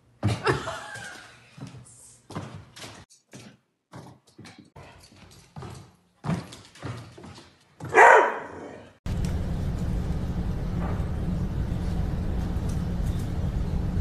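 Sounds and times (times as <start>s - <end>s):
dog barking: 7.8s - 8.9s
steady low hum: 9.1s - 14.0s.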